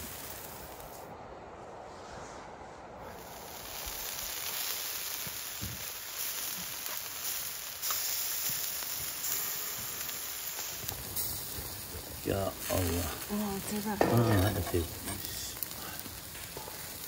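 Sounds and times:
meat sizzling: 0.0s - 1.0s, 3.1s - 17.0s
campfire embers hissing and crackling: 0.0s - 1.5s, 2.1s - 17.0s.

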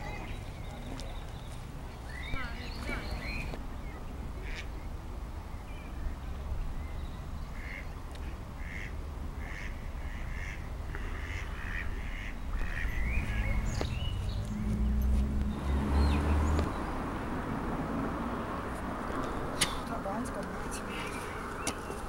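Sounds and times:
ducks quacking: 4.4s - 4.7s, 7.6s - 13.8s.

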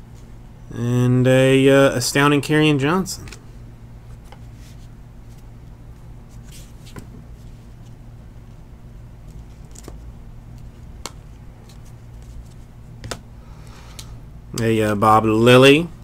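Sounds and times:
steady low hum: 0.0s - 16.0s
trading cards clicking and tapping: 9.3s - 13.2s.

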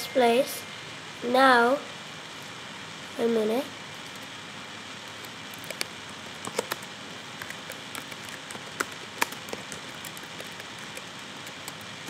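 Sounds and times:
steady hiss: 0.0s - 12.0s
keyboard keys clicking: 7.4s - 11.9s.

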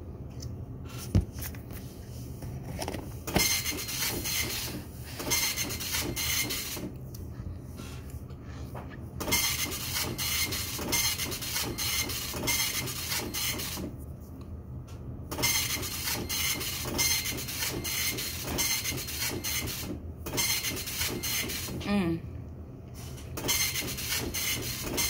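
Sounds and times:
office printer running: 2.8s - 7.0s, 9.2s - 14.0s, 15.3s - 21.8s, 23.1s - 25.0s.

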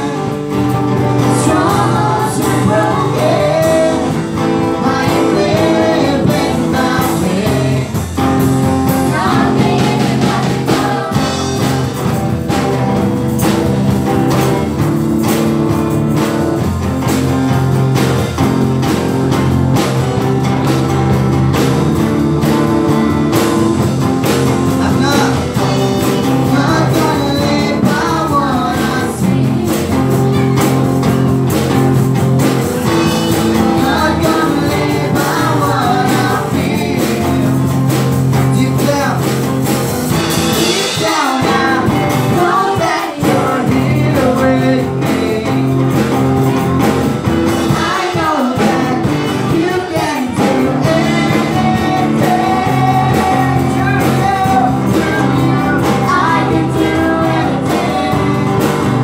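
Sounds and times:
drum kit: 0.0s - 59.0s
electric guitar: 0.0s - 59.0s
girls singing into microphones: 1.2s - 11.7s, 26.4s - 30.2s, 32.9s - 37.7s, 40.6s - 45.7s, 47.7s - 58.9s.

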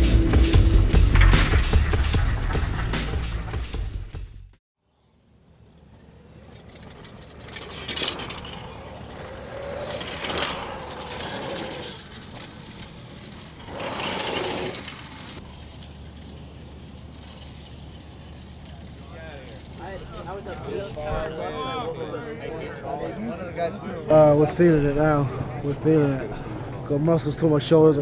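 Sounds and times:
electric motorcycles passing: 4.8s - 23.8s.

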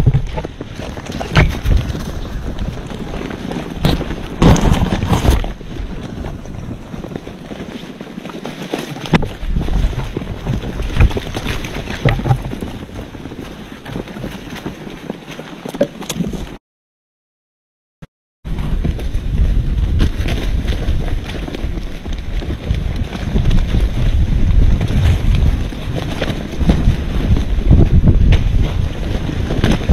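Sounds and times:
knocks and thumps: 0.0s - 2.2s, 9.1s - 12.9s
wind rumbling on microphone: 0.0s - 16.6s, 18.5s - 29.9s.

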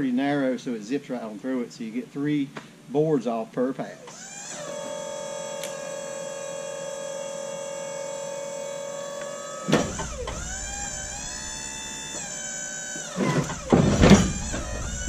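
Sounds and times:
hydraulics working under load: 4.1s - 15.0s
sawmill engine running: 4.1s - 15.0s.

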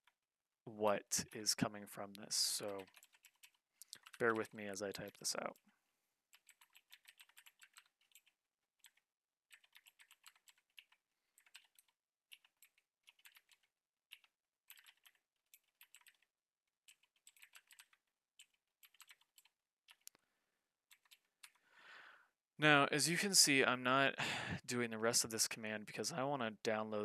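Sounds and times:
typing on computer keyboard: 2.6s - 5.6s, 6.3s - 20.0s, 20.9s - 21.6s.

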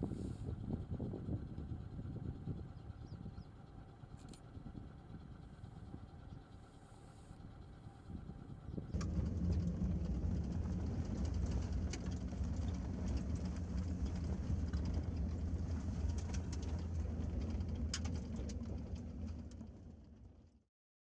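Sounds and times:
vehicle engine and road drone: 0.0s - 20.6s
rattles and clicks: 8.8s - 20.3s.

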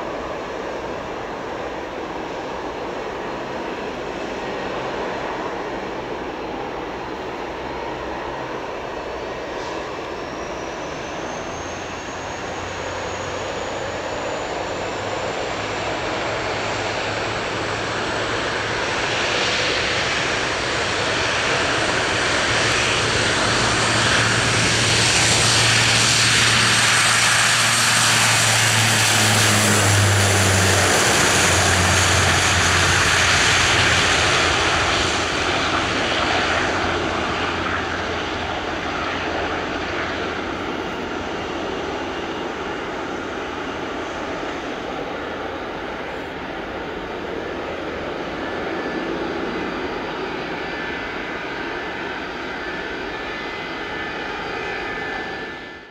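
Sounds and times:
airliner engines: 0.0s - 55.9s
high whine rising in pitch: 22.6s - 40.7s.

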